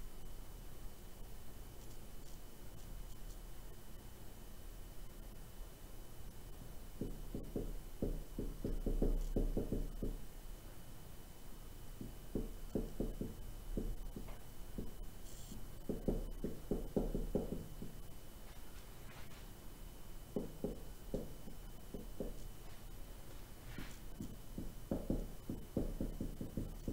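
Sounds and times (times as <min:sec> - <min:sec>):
faint high whine: 0:00.0 - 0:26.9
low electrical hum: 0:00.0 - 0:26.9.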